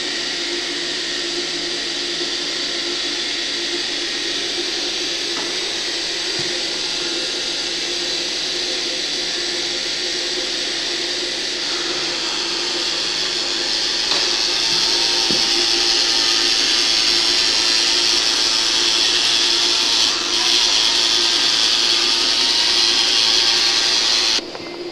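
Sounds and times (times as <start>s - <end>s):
small electric motors whirring: 0.0s - 24.4s.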